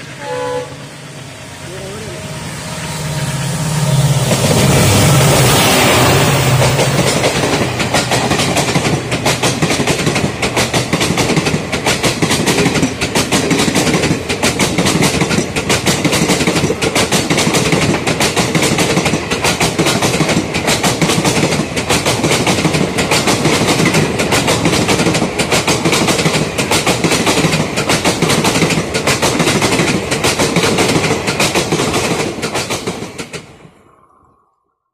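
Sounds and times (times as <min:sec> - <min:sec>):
diesel locomotive engine: 0:00.0 - 0:34.2
train wheels clattering over rail joints: 0:06.4 - 0:33.6.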